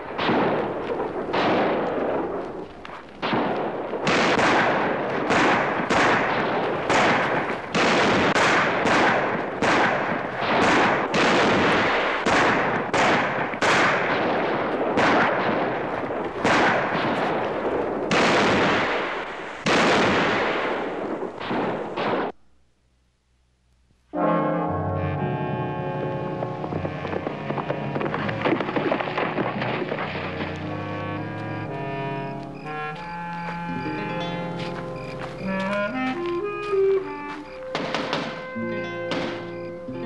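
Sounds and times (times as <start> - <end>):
gunshots echoing: 0.0 - 22.4, 26.3 - 32.8, 36.8 - 39.8.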